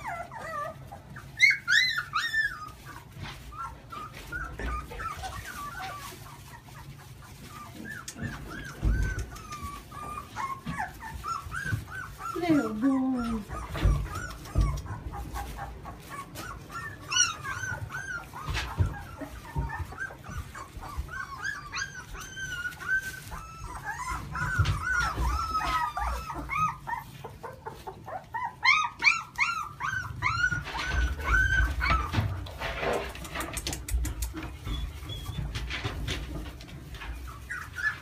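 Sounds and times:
puppies whimpering: 0.0 - 38.0.

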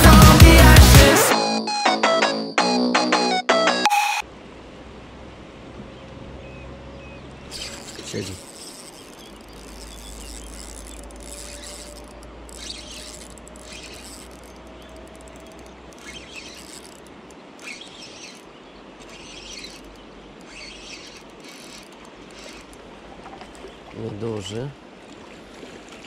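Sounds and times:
river rushing: 4.2 - 26.0
fishing reel rattling: 7.5 - 23.6.

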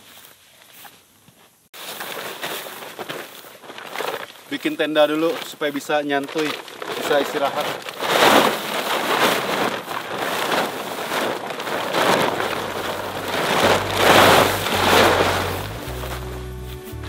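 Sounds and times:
plastic tarpaulin rustling: 1.8 - 17.0
soft music: 13.6 - 17.0.

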